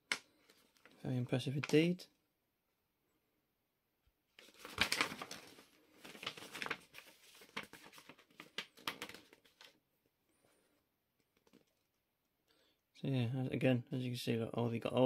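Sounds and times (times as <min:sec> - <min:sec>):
paper pages rustling: 0:04.4 - 0:09.8, 0:10.4 - 0:11.9.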